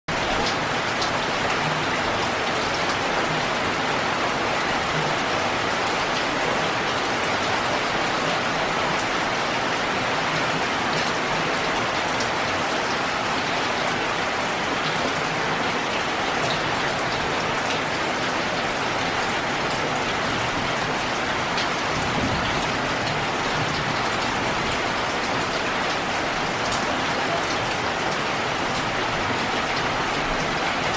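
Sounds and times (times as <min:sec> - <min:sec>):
heavy rain on leaves: 0:00.1 - 0:30.9.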